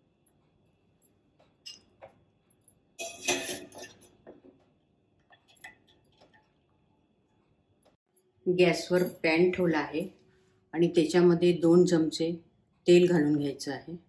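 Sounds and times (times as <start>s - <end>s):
wire skimmer clinking on pot: 3.0s - 4.4s.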